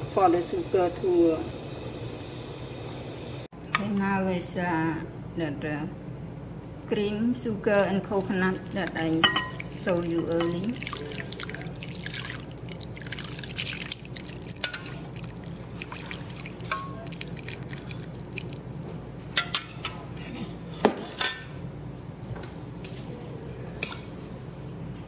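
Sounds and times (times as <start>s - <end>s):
liquid pouring in a thin stream: 10.5s - 18.7s.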